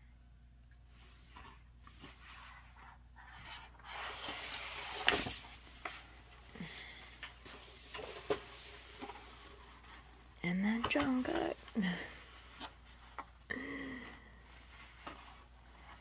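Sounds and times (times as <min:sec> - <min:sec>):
paper posters rustling: 0:01.3 - 0:13.2.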